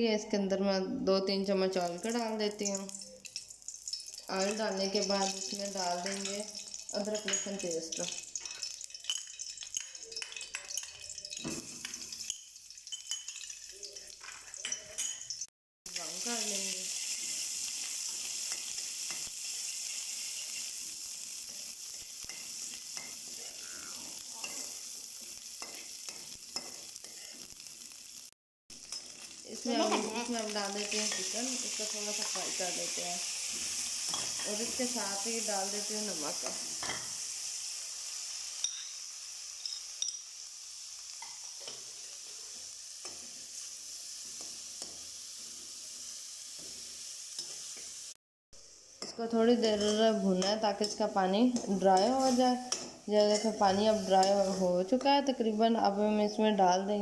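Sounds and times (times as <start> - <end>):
paste sizzling in hot oil: 1.2 - 56.6
metal spoon tapping and scraping: 3.2 - 15.5, 18.1 - 19.4, 21.5 - 23.5, 24.4 - 24.8, 25.6 - 27.4, 30.8 - 31.4, 38.6 - 39.0, 39.6 - 40.3, 44.4 - 45.1, 49.0 - 55.1.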